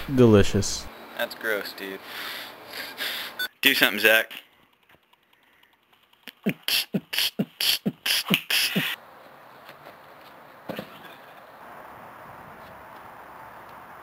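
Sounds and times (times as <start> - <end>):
faint outdoor hiss: 0.0 - 14.0
beatboxing: 6.3 - 9.0.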